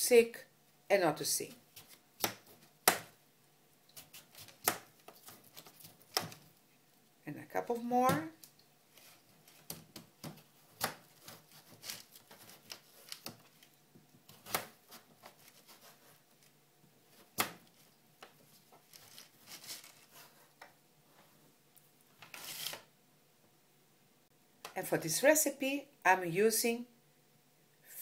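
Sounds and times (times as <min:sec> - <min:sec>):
knife cutting on plastic board: 0:04.0 - 0:06.4, 0:09.0 - 0:16.2.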